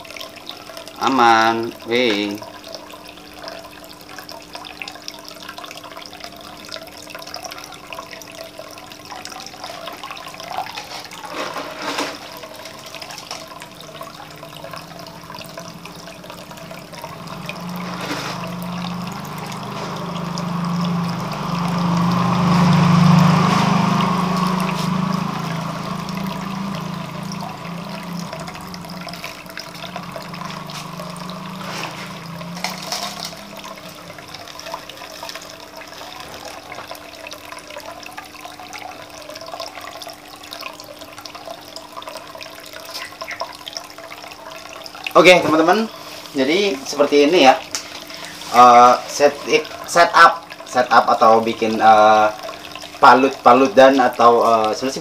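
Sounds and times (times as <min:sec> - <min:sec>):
water running and trickling: 0:00.0 - 0:55.0
low hum: 0:10.3 - 0:36.2.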